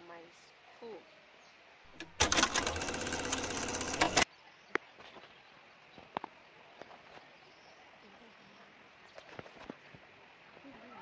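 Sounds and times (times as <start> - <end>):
film projector clatter: 1.9 - 4.2.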